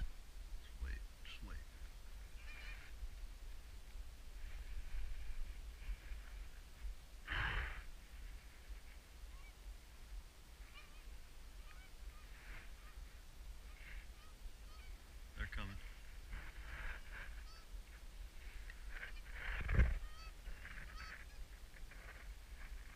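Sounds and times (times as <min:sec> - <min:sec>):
geese honking: 0:02.3 - 0:02.9, 0:10.6 - 0:15.0, 0:15.9 - 0:17.7.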